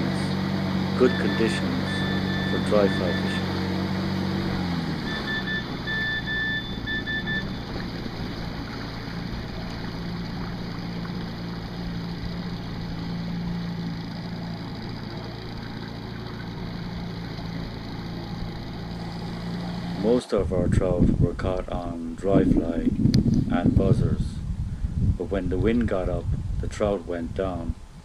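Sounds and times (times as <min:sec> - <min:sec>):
engine humming: 0:00.0 - 0:26.7
short high beeps: 0:01.1 - 0:03.5, 0:05.0 - 0:07.7.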